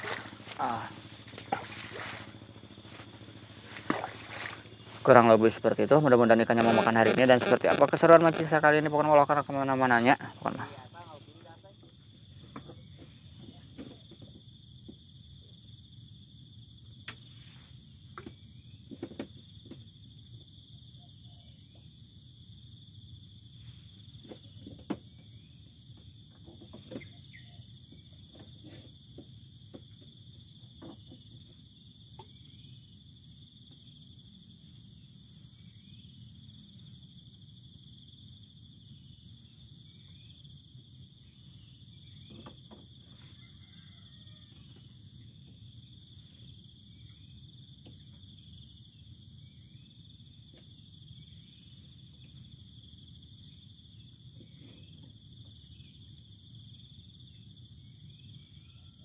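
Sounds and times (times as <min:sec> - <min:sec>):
low steady rumble: 0:00.0 - 0:13.3
insects chirring: 0:00.0 - 0:59.0.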